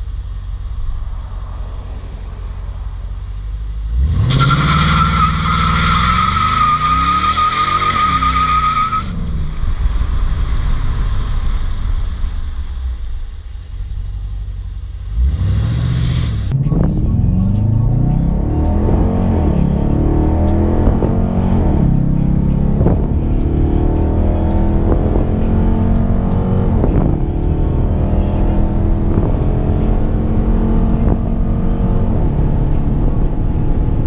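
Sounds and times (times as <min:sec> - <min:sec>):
car engine revving: 0:00.0 - 0:34.0
tyre screeching: 0:04.0 - 0:09.3.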